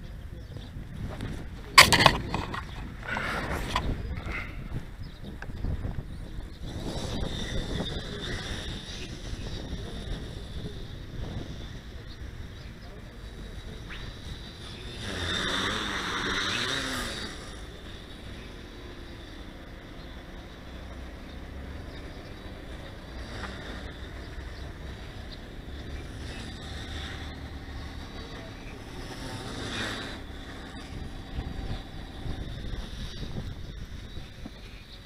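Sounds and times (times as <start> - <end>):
wind on microphone: 0.0 - 35.0
drone propellers whining: 1.6 - 35.0.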